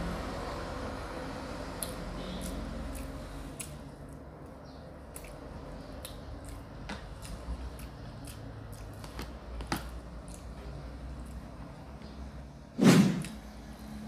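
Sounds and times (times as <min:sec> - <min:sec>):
person chewing: 0:01.7 - 0:11.6.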